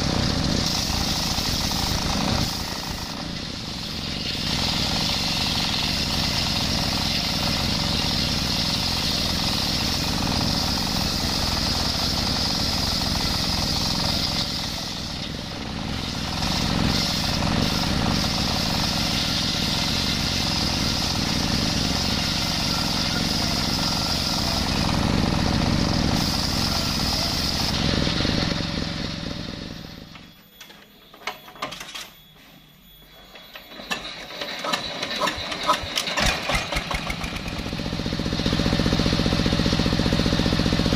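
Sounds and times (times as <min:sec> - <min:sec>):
circular saw blade screaming: 0:00.0 - 0:30.0
diesel engine running: 0:00.0 - 0:30.4, 0:33.4 - 0:40.9
engine starting: 0:33.2 - 0:38.1.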